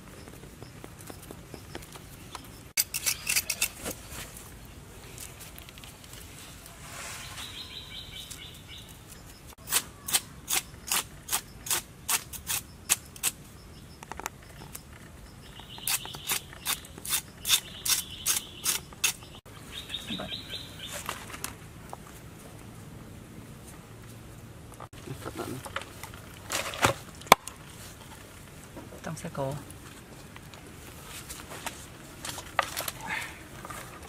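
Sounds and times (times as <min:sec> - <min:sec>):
birds chirping: 0:07.2 - 0:11.7, 0:12.6 - 0:21.4.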